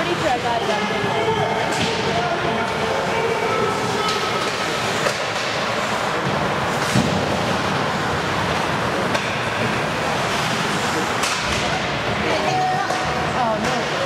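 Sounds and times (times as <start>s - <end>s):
skates scraping on ice: 2.8s - 14.0s
stick hitting puck: 4.0s - 5.8s.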